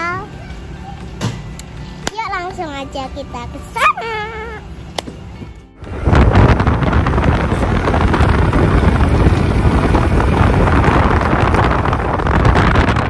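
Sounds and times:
motorbike running: 0:00.0 - 0:13.0
wind buffeting microphone: 0:05.4 - 0:13.0.

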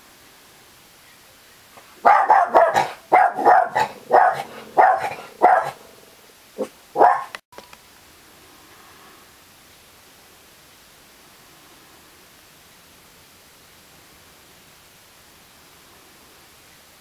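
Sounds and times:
dog barking: 0:02.0 - 0:06.0, 0:06.6 - 0:07.4.

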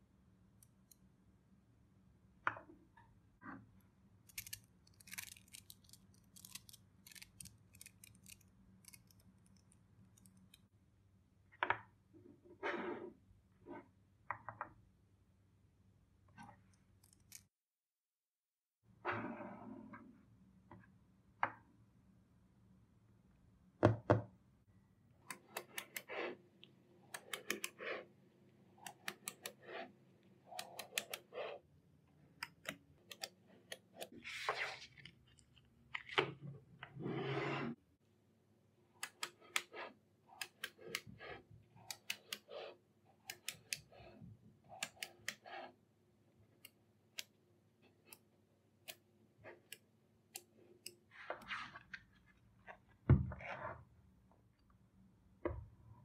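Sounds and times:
scraping sounds: 0:12.5 - 0:13.9, 0:25.5 - 0:26.4, 0:36.9 - 0:37.8.

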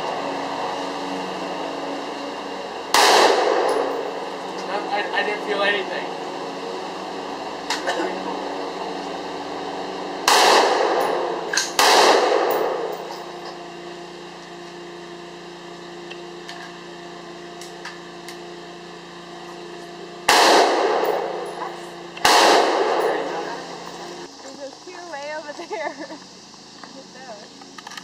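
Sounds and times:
gunshot echo: 0:02.9 - 0:04.0, 0:10.2 - 0:12.9, 0:20.3 - 0:21.4, 0:22.2 - 0:23.3
rifle shots: 0:02.9 - 0:04.1, 0:10.2 - 0:13.1, 0:20.3 - 0:21.5, 0:22.2 - 0:23.4.

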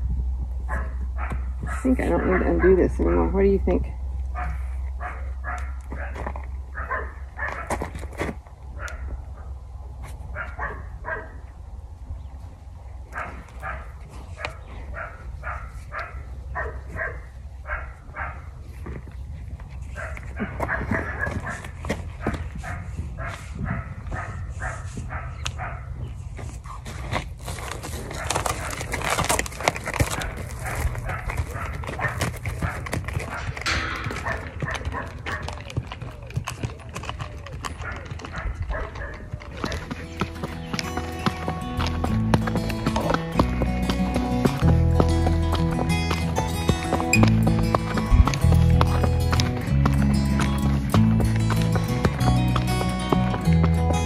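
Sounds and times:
hooves clopping on dirt: 0:00.0 - 0:54.0
dog barking: 0:00.7 - 0:03.4, 0:04.3 - 0:07.8, 0:08.8 - 0:09.5, 0:10.3 - 0:11.4, 0:13.1 - 0:18.5, 0:20.0 - 0:26.0, 0:30.6 - 0:35.6, 0:37.8 - 0:39.8.

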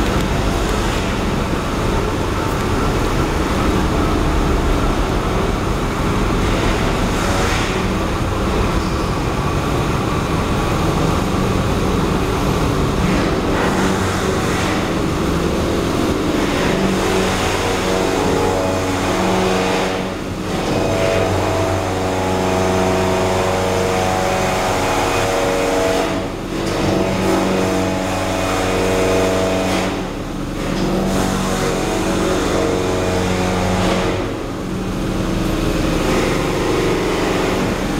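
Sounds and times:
vehicle engine noise: 0:00.0 - 0:37.9.

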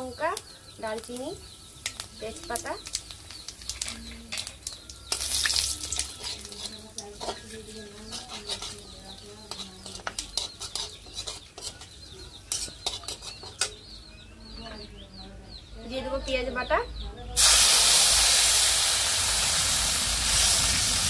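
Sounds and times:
spices sizzling in hot oil: 0:00.0 - 0:14.0, 0:17.4 - 0:21.0
metal spatula scraping a pan: 0:03.6 - 0:13.8.

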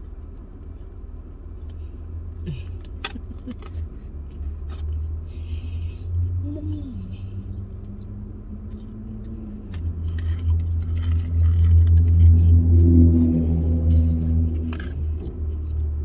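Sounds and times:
low steady rumble: 0:00.0 - 0:16.0
chewing: 0:07.8 - 0:16.0.

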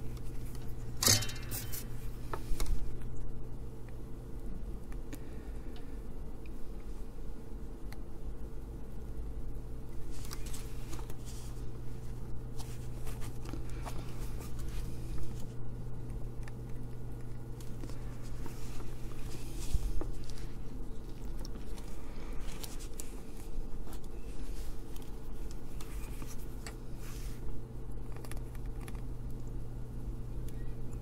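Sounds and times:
steady low hum: 0:00.0 - 0:31.0.

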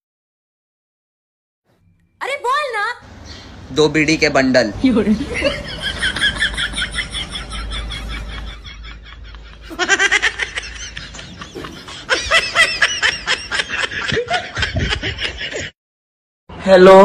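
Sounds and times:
woman laughing: 0:05.1 - 0:15.7.

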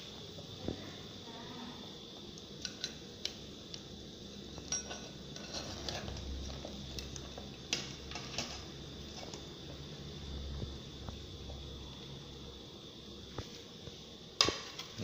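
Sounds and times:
metal utensils scraping a pot: 0:04.7 - 0:06.2.

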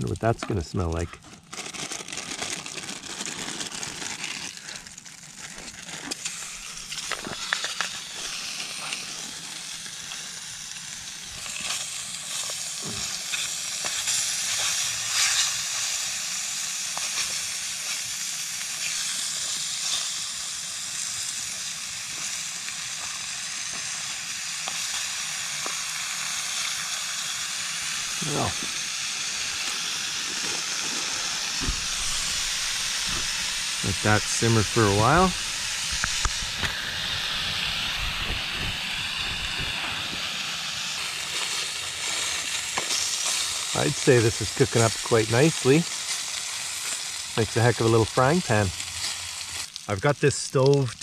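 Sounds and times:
bacon sizzling and crackling: 0:00.0 - 0:51.0
fat popping: 0:28.0 - 0:36.8.

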